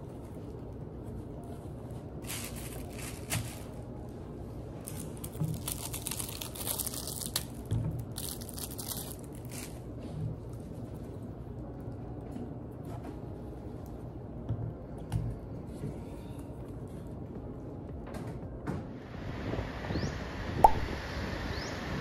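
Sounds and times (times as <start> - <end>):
plastic wrapper crinkling and tearing: 2.2 - 4.1, 4.8 - 11.2.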